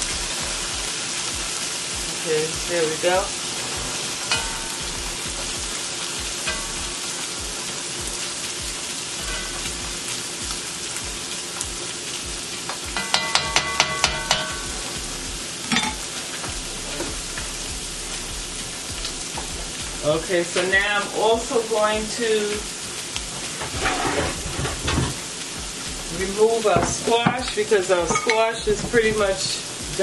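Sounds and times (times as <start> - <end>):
spatula stirring onions: 0.0 - 21.1
fish and onion sizzling in oil: 0.0 - 30.0.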